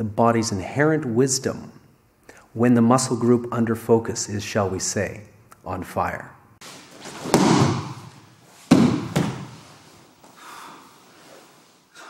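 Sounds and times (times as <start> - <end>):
scuffing on a mat: 6.6 - 10.4
body hitting a mat: 6.7 - 10.3.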